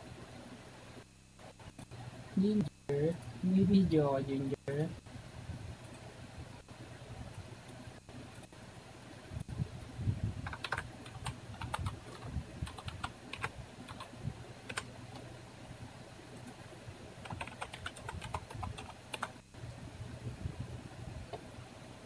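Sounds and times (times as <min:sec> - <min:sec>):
keyboard typing: 0:10.4 - 0:15.3, 0:17.2 - 0:19.4.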